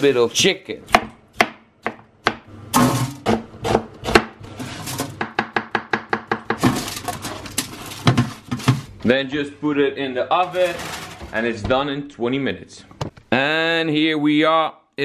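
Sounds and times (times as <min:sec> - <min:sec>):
knife chopping on plastic board: 0:00.9 - 0:02.5, 0:03.2 - 0:04.4, 0:05.2 - 0:06.8
slices scraped into baking tray: 0:04.4 - 0:05.1.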